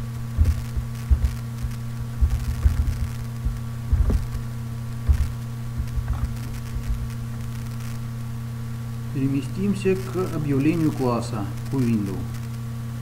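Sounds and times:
microphone crackles and thumps: 0.0 - 8.1
electrical hum: 0.0 - 13.0.

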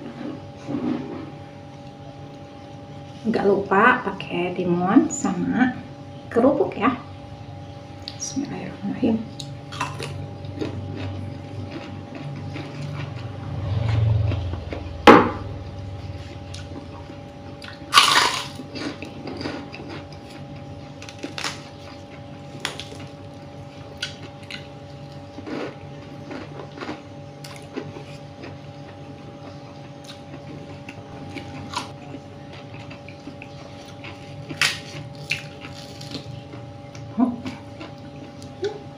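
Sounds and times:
faint steady hum: 0.0 - 38.9
person chewing food: 9.3 - 38.9.

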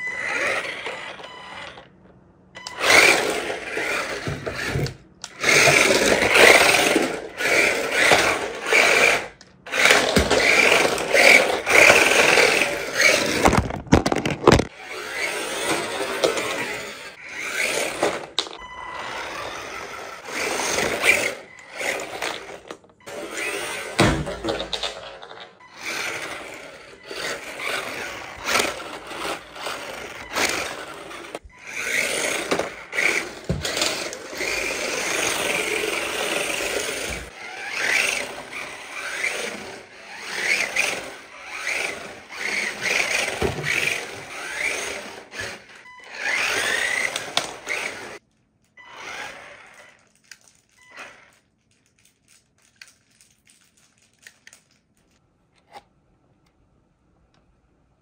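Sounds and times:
rc car electric motor whining: 0.0 - 1.8, 2.6 - 13.7, 14.7 - 24.1, 25.7 - 48.2, 48.8 - 50.2, 50.9 - 51.4
tyres scraping and skidding: 5.4 - 18.4, 19.0 - 48.2.

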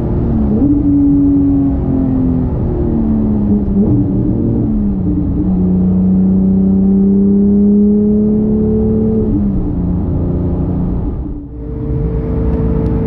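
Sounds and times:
car engine under load: 0.0 - 13.0
tyre and road noise: 9.3 - 13.0.

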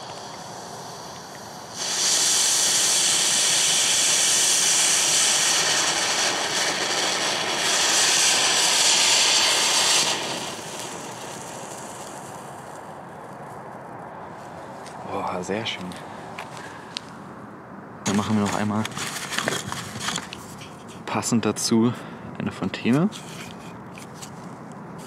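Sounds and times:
firework fountain hissing: 0.0 - 13.4, 18.1 - 20.7.

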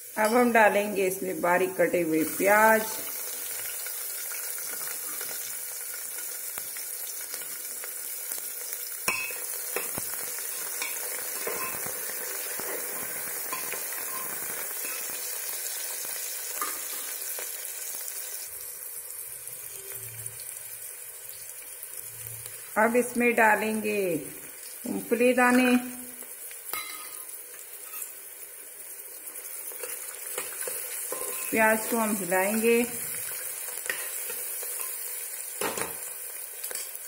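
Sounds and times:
onions sizzling in hot oil: 0.0 - 37.0
steel spoon clinking against pot: 9.1 - 10.0, 10.6 - 11.9, 12.6 - 15.1, 26.7 - 28.1, 29.8 - 31.6.

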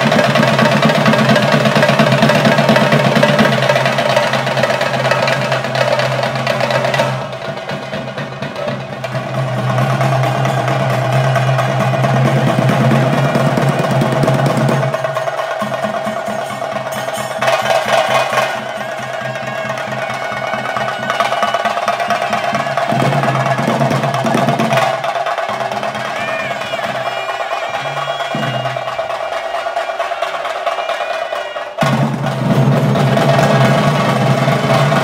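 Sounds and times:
drums beaten in fast rolls: 0.0 - 35.0.

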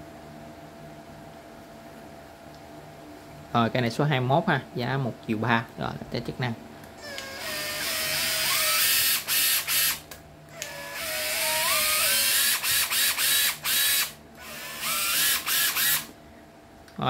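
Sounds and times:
cordless drill motor whine: 7.0 - 16.2.

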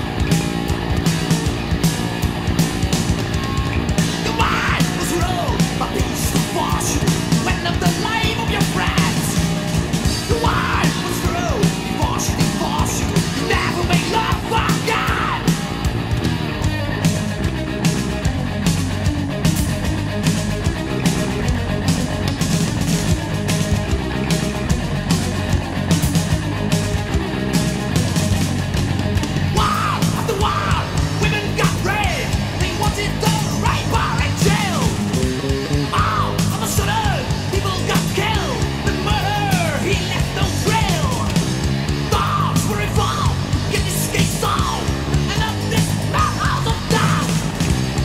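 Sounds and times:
distorted metal band music: 0.0 - 48.0
thrash metal song: 0.0 - 48.0
shouted vocals: 3.4 - 15.8, 29.5 - 35.2, 35.8 - 48.0.

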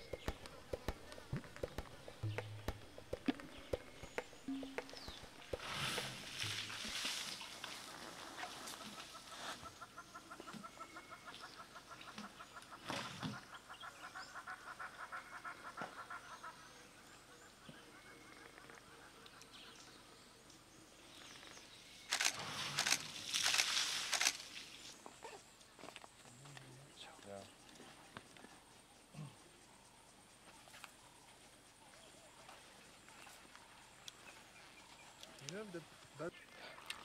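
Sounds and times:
bird calling rapid notes: 0.0 - 6.6.

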